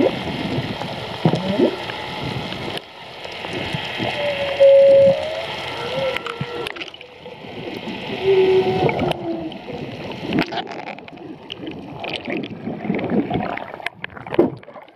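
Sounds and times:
whale song underwater: 0:00.0 - 0:10.4
bubbling and sloshing water: 0:00.0 - 0:14.9.

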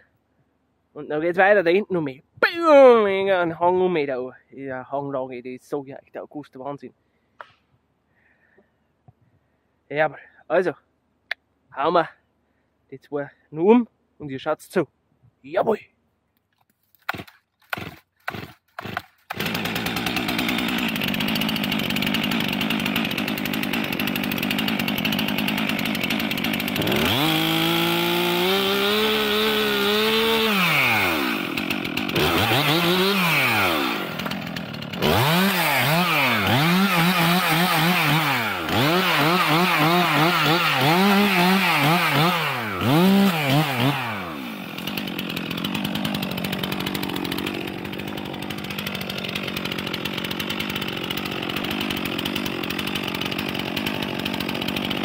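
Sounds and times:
chainsaw cutting wood: 0:16.6 - 0:55.0.

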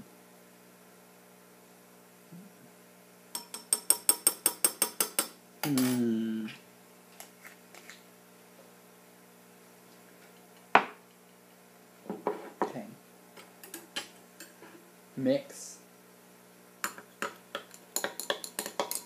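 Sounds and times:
short voice sound falling in pitch: 0:05.6 - 0:06.6.

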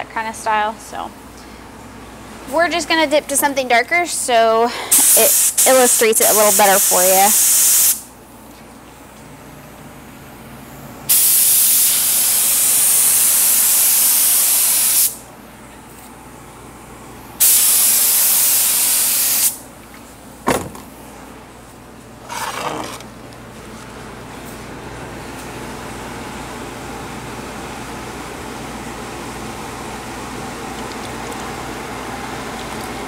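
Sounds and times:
air spray gun hissing: 0:04.9 - 0:08.1, 0:11.1 - 0:15.2, 0:17.4 - 0:19.6.

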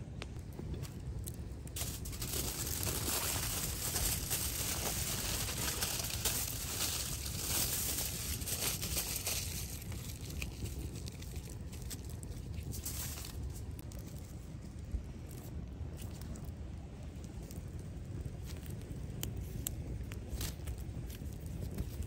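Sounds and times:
aluminium foil crinkling: 0:01.2 - 0:14.5, 0:18.4 - 0:22.0.

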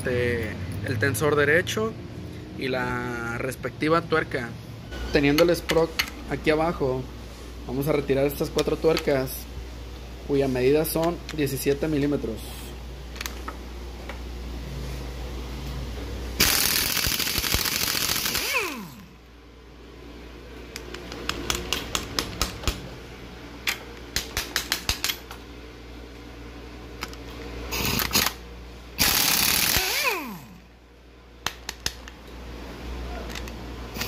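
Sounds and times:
impact wrench hammering: 0:16.4 - 0:19.0, 0:24.1 - 0:25.3, 0:29.0 - 0:30.4.

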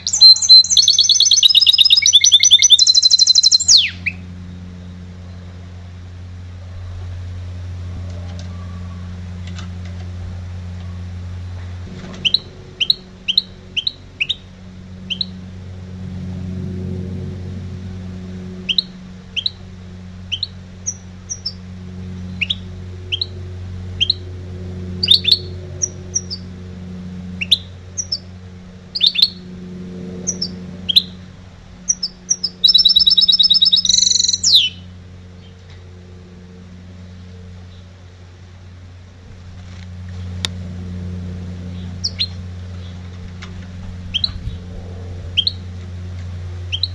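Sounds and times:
finch chirping: 0:00.0 - 0:04.2, 0:12.1 - 0:14.5, 0:15.1 - 0:15.4, 0:20.3 - 0:21.6, 0:27.4 - 0:28.3, 0:29.0 - 0:29.4, 0:31.9 - 0:34.8, 0:41.8 - 0:42.9, 0:44.1 - 0:44.6, 0:45.4 - 0:45.6
buzzy bird trill: 0:00.0 - 0:05.6, 0:11.9 - 0:15.5, 0:18.6 - 0:24.3, 0:24.9 - 0:26.6, 0:27.2 - 0:29.6, 0:30.2 - 0:35.6, 0:41.7 - 0:43.1, 0:44.0 - 0:44.7, 0:45.3 - 0:45.8, 0:46.6 - 0:46.9.

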